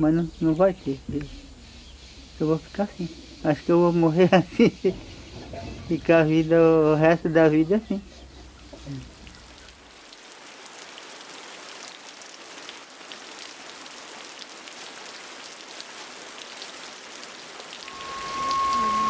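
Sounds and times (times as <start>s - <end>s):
steady rain falling: 0.0s - 19.0s
steady high tone: 17.9s - 19.0s.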